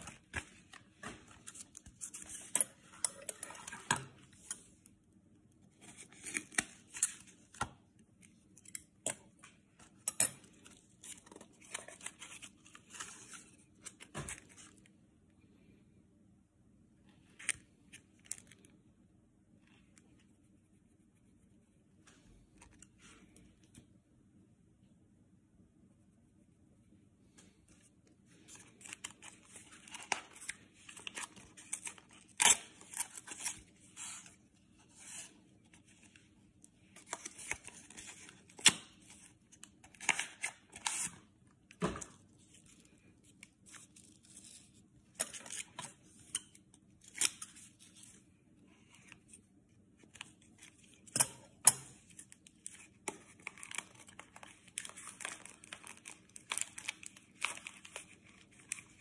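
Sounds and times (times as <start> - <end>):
packaging rustling and tearing: 28.5 - 34.3, 52.1 - 59.0.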